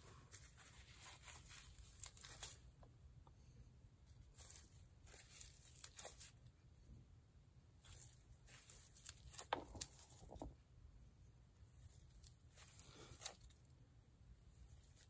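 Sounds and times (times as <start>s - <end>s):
plastic glove crinkling: 0.1s - 2.9s, 4.0s - 6.6s, 7.8s - 10.6s, 11.8s - 13.7s.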